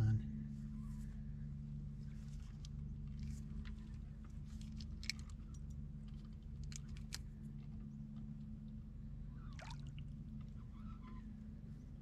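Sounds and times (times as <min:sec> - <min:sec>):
low steady rumble: 0:00.0 - 0:12.0
small water splashes: 0:09.5 - 0:10.2.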